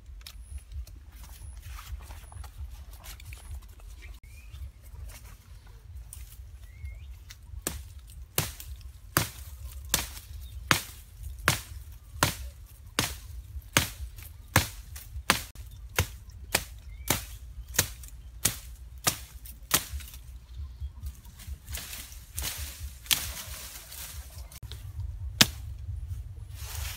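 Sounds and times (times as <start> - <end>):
hatchet chopping wood: 7.6 - 20.2, 25.4 - 25.6.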